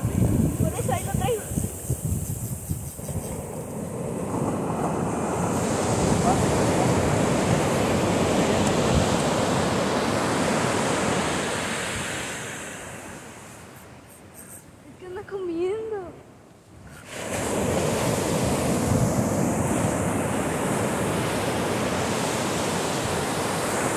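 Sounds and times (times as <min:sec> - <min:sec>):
wave breaking on beach: 0:03.0 - 0:13.6, 0:17.0 - 0:23.9.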